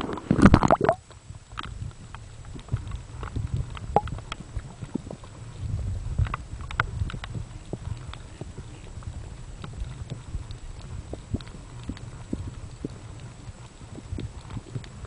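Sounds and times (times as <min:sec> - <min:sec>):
underwater clicks and pops: 0:00.0 - 0:05.2, 0:06.2 - 0:08.5
muffled underwater rumble: 0:00.0 - 0:15.0.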